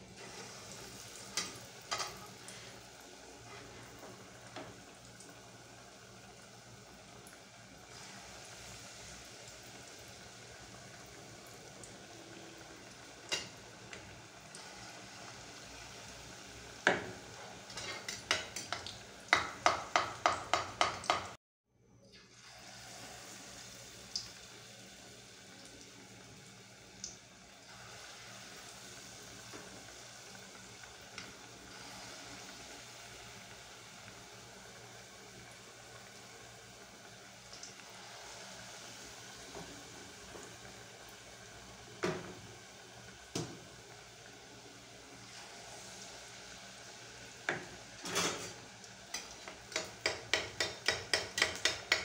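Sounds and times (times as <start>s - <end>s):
fritters sizzling in hot oil: 0.0s - 21.4s, 22.2s - 52.0s
metal spoon knocking on pot: 19.3s - 21.3s, 49.7s - 52.0s.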